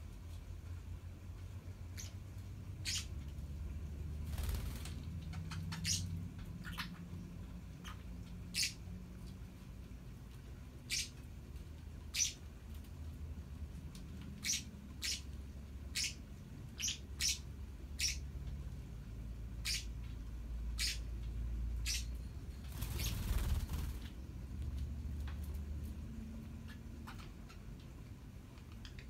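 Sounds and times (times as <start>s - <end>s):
low steady hum: 0.0s - 29.0s
parrots chirping: 1.9s - 3.6s, 4.4s - 9.4s, 10.8s - 11.3s, 12.0s - 12.5s, 14.2s - 18.5s, 19.4s - 24.2s, 26.1s - 29.0s.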